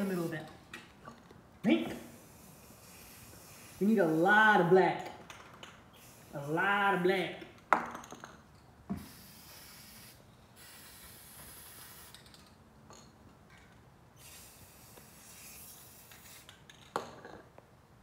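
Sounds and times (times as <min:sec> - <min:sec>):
spray paint can hissing: 0:00.0 - 0:00.5, 0:02.0 - 0:04.7, 0:05.6 - 0:06.6, 0:08.9 - 0:12.6, 0:14.2 - 0:16.8.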